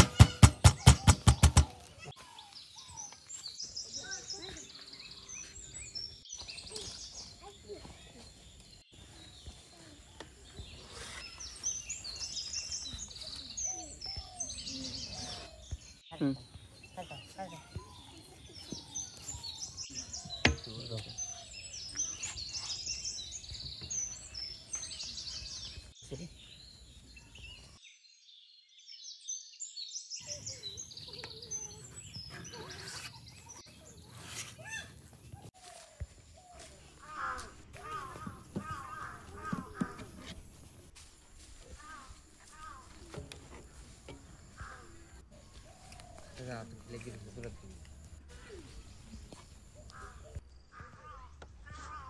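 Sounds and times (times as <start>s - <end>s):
outdoor background noise: 0.0s - 27.8s, 30.1s - 52.0s
small birds chirping: 0.0s - 52.0s
low outdoor background noise: 30.2s - 52.0s.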